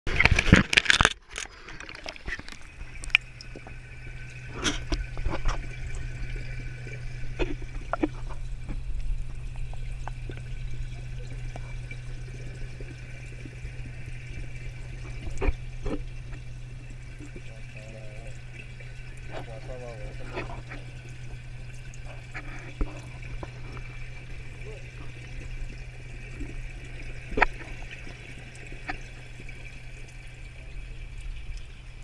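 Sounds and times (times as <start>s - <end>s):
small underwater clicks: 0.1s - 32.0s
underwater low hum: 0.1s - 32.0s.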